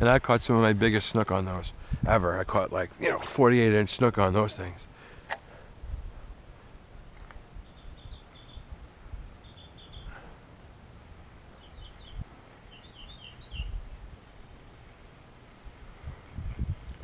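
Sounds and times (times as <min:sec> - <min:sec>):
small bird chirping: 0:07.6 - 0:08.7, 0:09.4 - 0:10.3, 0:11.5 - 0:13.8
low rumble on microphone: 0:15.7 - 0:17.0.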